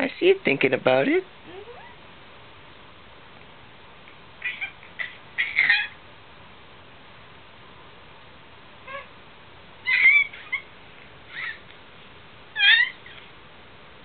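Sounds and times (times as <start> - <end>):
baby squealing: 4.4 - 6.0, 8.9 - 9.1, 9.8 - 10.7, 11.3 - 11.6, 12.6 - 13.3.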